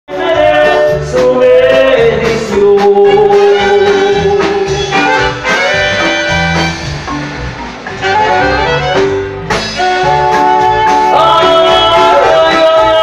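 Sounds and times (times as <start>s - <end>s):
live band music over speakers: 0.1s - 13.0s
horn section long notes: 3.0s - 13.0s.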